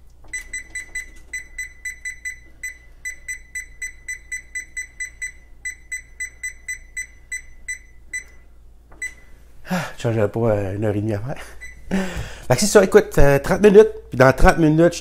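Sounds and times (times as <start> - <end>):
oven timer keypad beeps: 0.3 - 9.4, 11.6 - 11.9.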